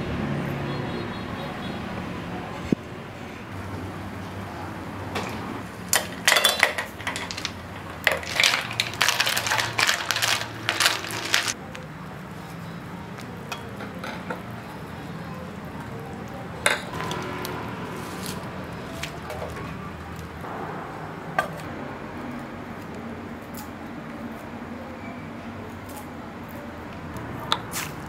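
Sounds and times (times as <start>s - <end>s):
snail shells clattering into pot: 5.9s - 11.6s.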